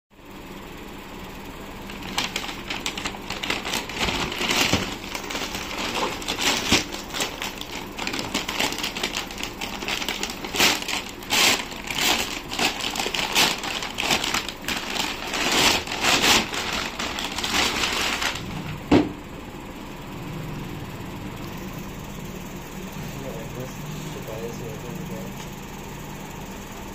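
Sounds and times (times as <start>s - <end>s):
paper bag crinkling and tearing: 1.8s - 18.6s.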